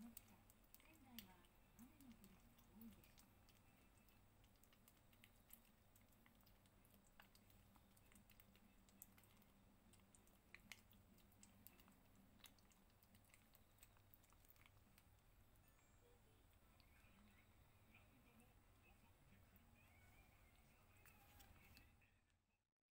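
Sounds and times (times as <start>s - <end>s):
kitten licking wet clicks: 0.0s - 15.6s, 16.3s - 17.5s
faint low hum: 0.0s - 22.6s.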